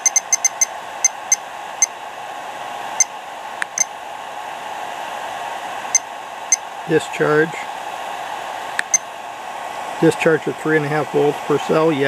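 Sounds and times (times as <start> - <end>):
short high electronic beeps: 0.0 - 1.4
steady hiss: 1.7 - 12.0.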